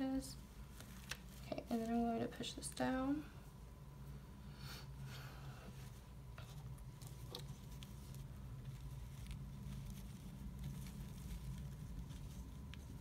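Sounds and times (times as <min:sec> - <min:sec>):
steady low hum: 0:00.0 - 0:13.0
fabric rustling and ticks: 0:00.4 - 0:02.8, 0:05.8 - 0:13.0.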